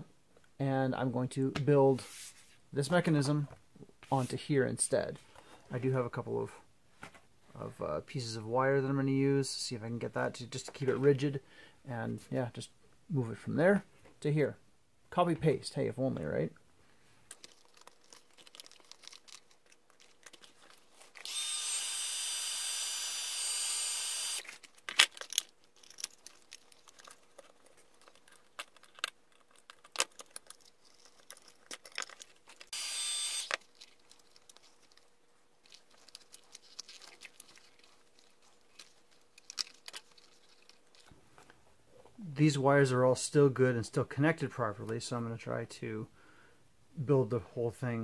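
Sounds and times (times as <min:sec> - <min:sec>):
clicks of small parts handled: 0:17.3 - 0:21.3, 0:24.4 - 0:32.7, 0:33.4 - 0:41.6
small power tool whining: 0:21.2 - 0:24.4, 0:32.7 - 0:33.6.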